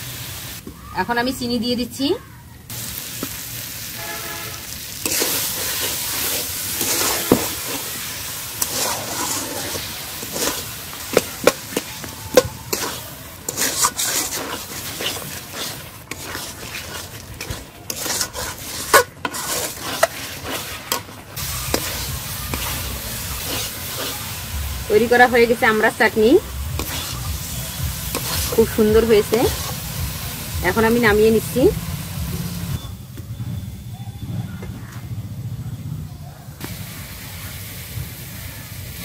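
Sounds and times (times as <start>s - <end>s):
food sizzling in pan: 0.0s - 0.6s, 2.7s - 32.8s, 36.6s - 39.0s
metal spatula scraping pan: 5.0s - 25.9s, 26.7s - 30.0s.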